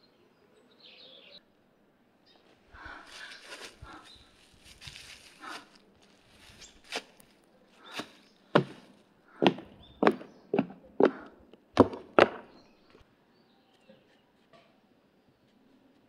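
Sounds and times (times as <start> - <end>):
heeled footsteps on wooden boards: 7.9 - 12.6.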